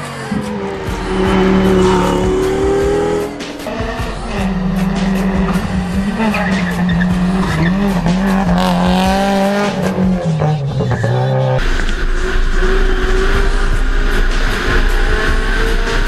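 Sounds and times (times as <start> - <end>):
tyres squealing: 0.0 - 8.6
rally car engine running hard: 0.0 - 16.0.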